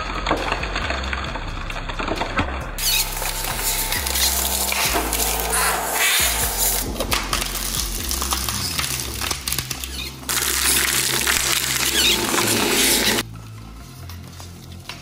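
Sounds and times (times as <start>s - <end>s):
shredder motor running: 2.8s - 8.3s, 10.3s - 13.2s
shredder tearing foam: 2.8s - 9.6s, 10.3s - 13.2s.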